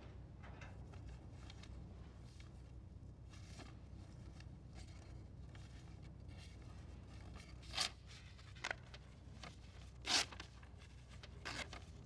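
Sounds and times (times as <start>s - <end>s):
low steady hum: 0.0s - 12.0s
envelope rustling and crinkling: 3.3s - 12.0s.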